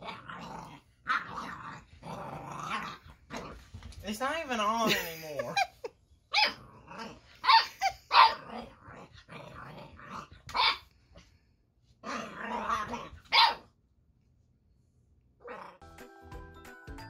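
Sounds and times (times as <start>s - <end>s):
puppy growling: 0.0s - 3.8s, 6.4s - 10.8s, 12.0s - 13.6s, 15.4s - 15.8s
puppy barking: 6.3s - 6.6s, 7.4s - 8.5s, 10.5s - 10.9s, 12.7s - 13.7s.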